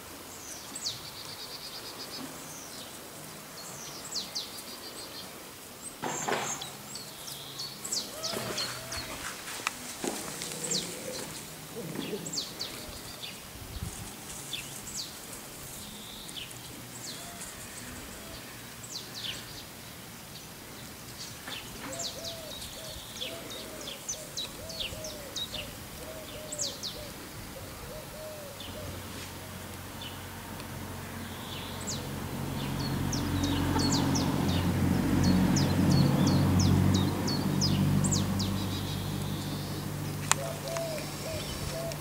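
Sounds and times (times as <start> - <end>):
songbirds chirping: 0.0 - 42.0.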